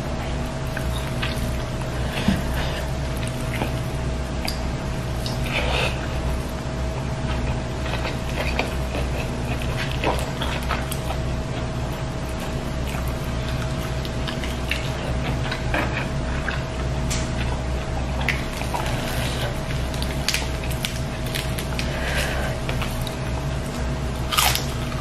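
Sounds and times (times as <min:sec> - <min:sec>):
steady background hum: 0:00.0 - 0:25.0
chewing and lip smacks: 0:04.4 - 0:06.1, 0:07.0 - 0:21.9.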